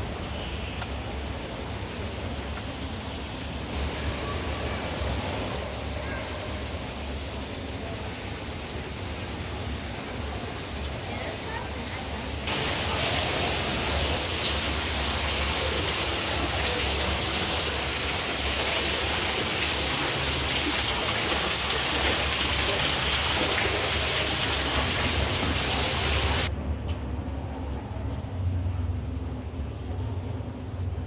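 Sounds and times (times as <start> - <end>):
waterfall splashing into pond: 12.5 - 26.5.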